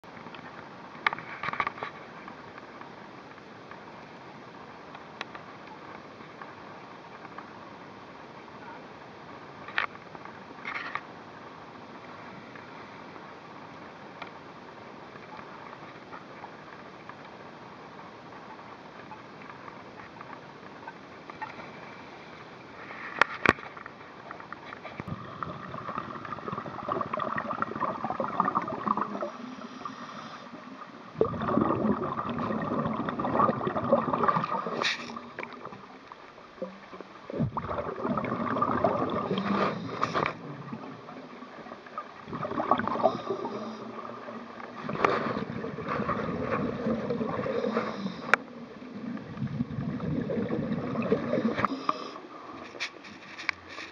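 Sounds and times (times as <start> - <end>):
underwater exhaled bubbles gurgling: 25.0 - 52.6.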